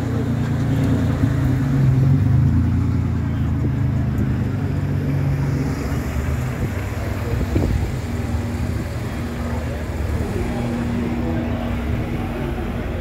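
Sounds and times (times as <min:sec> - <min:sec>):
car engine running: 0:00.0 - 0:13.0.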